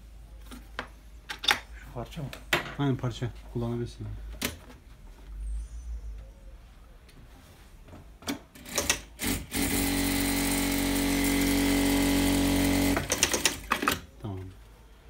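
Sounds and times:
fabric rustling: 6.6s - 8.2s
sewing machine running: 8.6s - 13.8s
sewing machine clicks: 8.6s - 14.0s.

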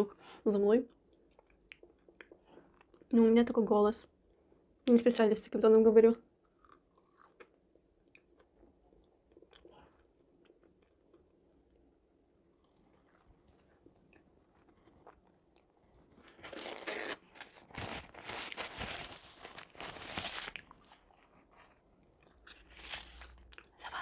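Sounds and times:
chewing: 6.4s - 11.3s, 12.5s - 16.6s
paper napkin rustling: 16.2s - 21.7s.

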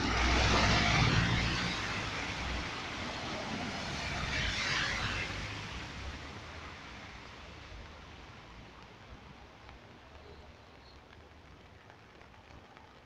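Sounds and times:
car engine passing: 0.0s - 5.6s
car splashing past: 0.0s - 6.0s.

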